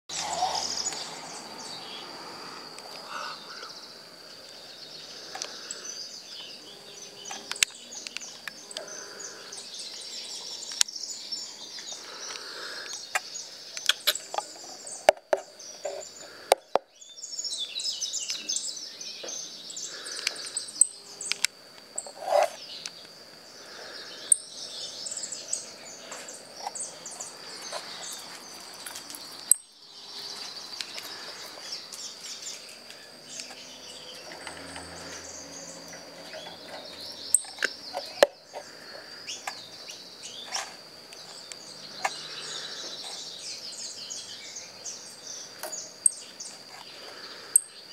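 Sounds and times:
finches chirping and twittering: 0.1 - 47.9
thin steady high tone: 17.1 - 34.2.

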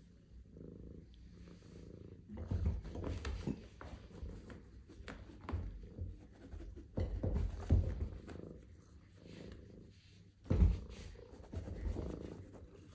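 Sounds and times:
cat purring: 0.0 - 12.9
soft thumps on chair: 10.4 - 12.3.

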